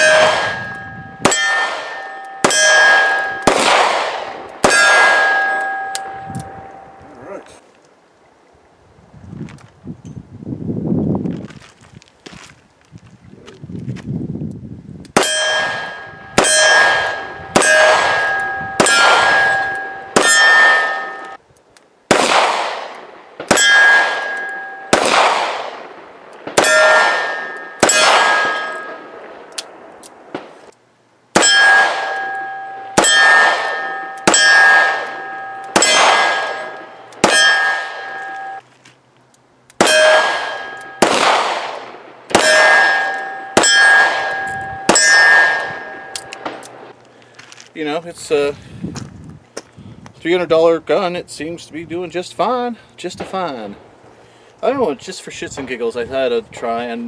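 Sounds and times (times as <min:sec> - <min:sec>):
steel plate ringing: 0:00.0 - 0:07.1, 0:15.2 - 0:21.4, 0:23.5 - 0:25.2, 0:26.6 - 0:29.2, 0:31.4 - 0:38.6, 0:39.8 - 0:41.2, 0:42.3 - 0:46.6.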